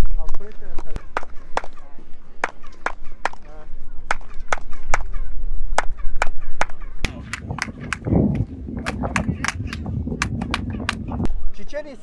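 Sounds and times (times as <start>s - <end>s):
chirping echo: 1.0s - 11.6s
hand claps: 6.2s - 11.1s.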